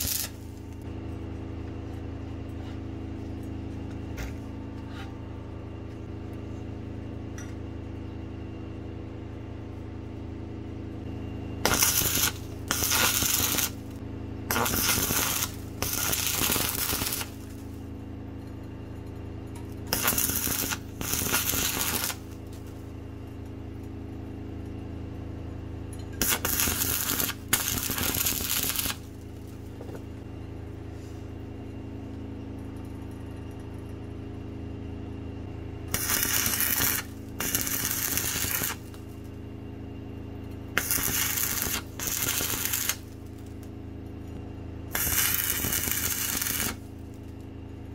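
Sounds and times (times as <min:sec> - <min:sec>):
electric arc welding bursts: 0:00.0 - 0:00.5, 0:11.6 - 0:13.9, 0:14.5 - 0:17.6, 0:19.9 - 0:22.4, 0:26.2 - 0:29.1, 0:35.9 - 0:39.0, 0:40.8 - 0:43.2, 0:44.9 - 0:46.9
steady low hum: 0:00.0 - 0:47.9.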